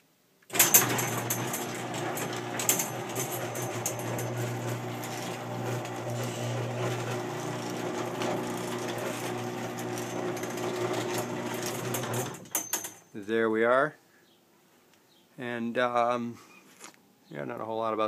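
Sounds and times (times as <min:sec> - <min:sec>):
garage door opener motor hum: 0:00.5 - 0:12.7
clicks and rattles from drive: 0:00.5 - 0:13.0.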